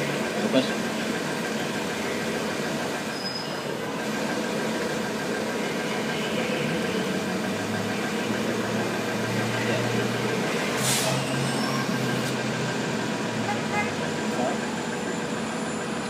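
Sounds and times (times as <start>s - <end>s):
city traffic noise: 0.0s - 16.0s
high-pitched squeal: 10.8s - 12.2s.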